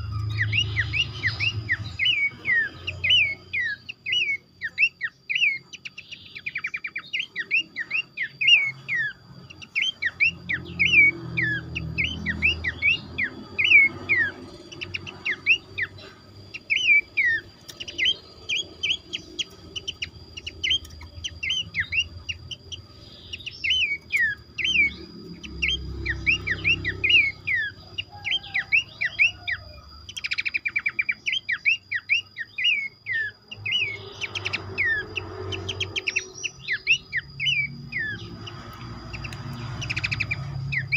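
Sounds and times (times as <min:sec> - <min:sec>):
birds chirping: 0:00.0 - 0:40.9
rattling bird trill: 0:00.0 - 0:40.9.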